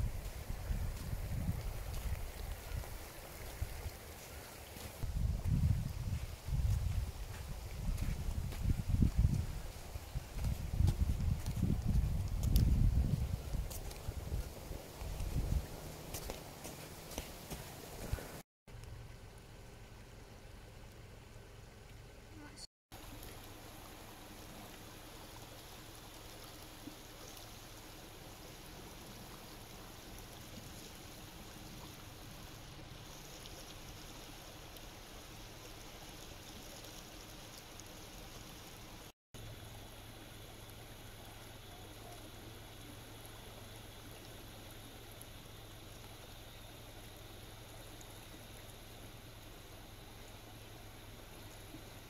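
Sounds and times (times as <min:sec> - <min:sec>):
floodwater rushing over stones: 0:00.0 - 0:05.2, 0:06.2 - 0:18.4.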